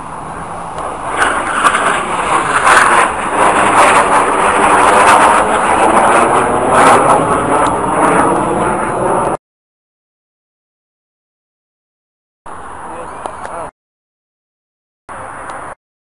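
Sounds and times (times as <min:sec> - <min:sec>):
jet engines roaring: 0:00.0 - 0:09.4, 0:12.5 - 0:13.7, 0:15.1 - 0:15.8.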